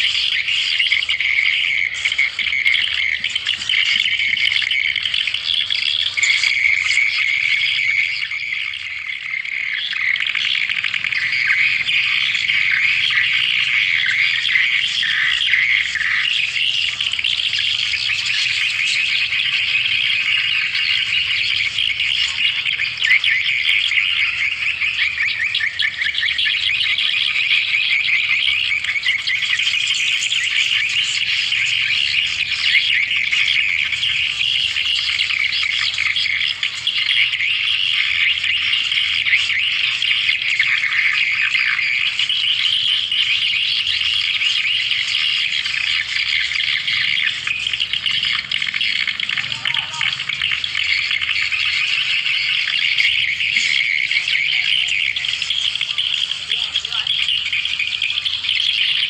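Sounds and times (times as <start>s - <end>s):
swiftlets twittering: 0.0s - 59.0s.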